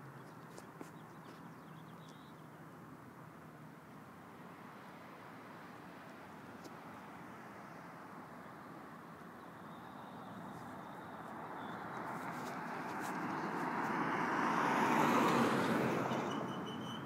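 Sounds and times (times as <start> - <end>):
road vehicle passing by: 4.4 - 17.0.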